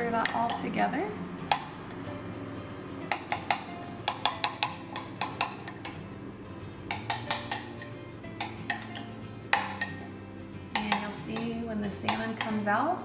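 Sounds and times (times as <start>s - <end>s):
metal spoon clinking glass bowl: 3.1s - 6.1s, 6.9s - 11.5s.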